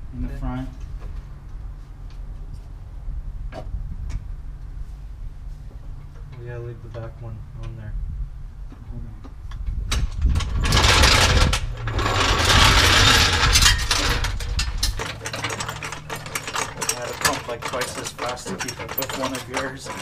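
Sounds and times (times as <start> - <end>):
floor jack scraping on concrete: 10.3 - 20.0.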